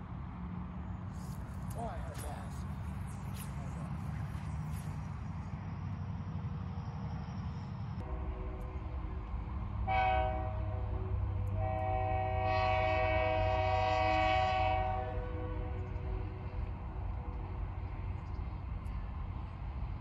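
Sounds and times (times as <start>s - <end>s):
steady low rumble: 0.0s - 20.0s
multi-tone horn blasts: 9.8s - 16.5s.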